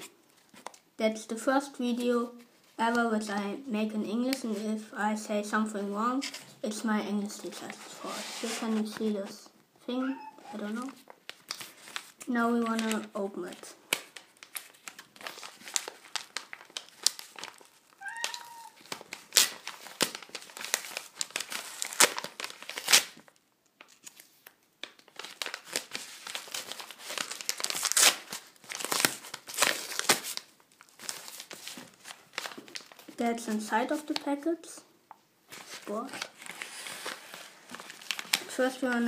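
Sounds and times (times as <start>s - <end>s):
cat meowing: 10.0s - 10.6s, 18.0s - 18.8s
paper packaging crinkling: 10.1s - 34.4s, 35.5s - 39.0s.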